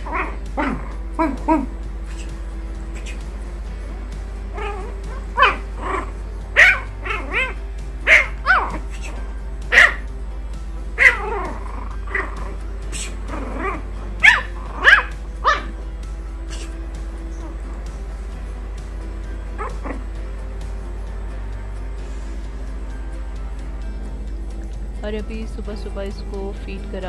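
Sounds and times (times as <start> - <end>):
puppy yapping: 0.0 - 1.8, 4.5 - 10.1, 11.0 - 15.8, 19.5 - 20.1.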